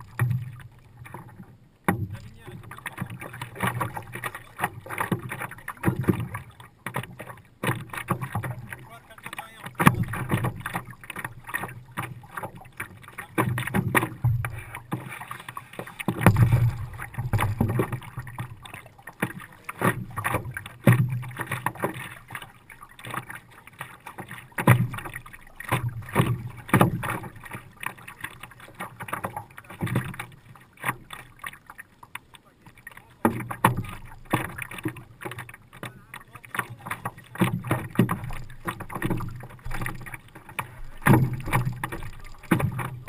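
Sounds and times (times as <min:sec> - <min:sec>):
water splashing against a paddleboard: 0:00.0 - 0:43.0.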